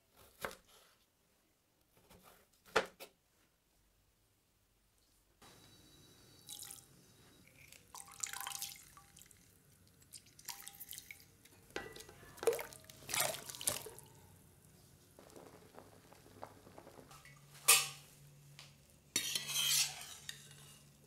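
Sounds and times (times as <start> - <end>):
juice dripping into water: 7.5 - 11.5.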